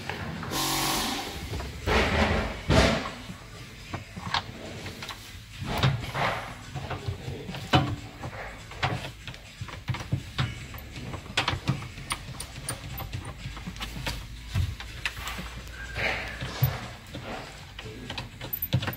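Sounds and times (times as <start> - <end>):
small metal clicks and taps: 8.8 - 15.2, 17.8 - 18.9.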